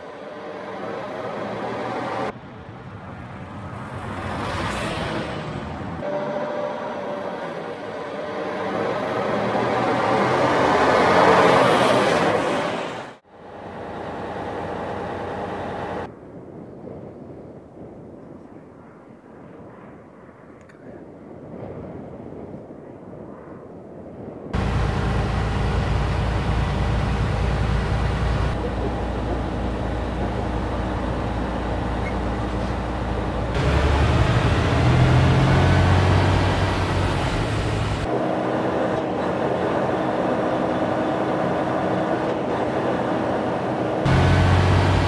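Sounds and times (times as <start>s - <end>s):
truck engine drone: 0.0s - 16.1s, 24.6s - 45.0s
tyre and road noise: 0.0s - 16.1s, 24.6s - 45.0s.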